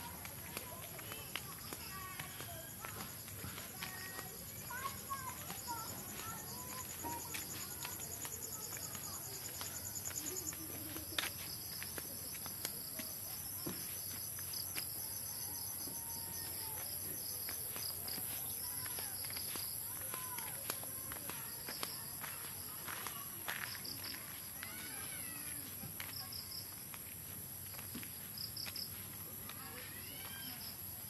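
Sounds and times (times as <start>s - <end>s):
crickets trilling: 0.0s - 31.0s.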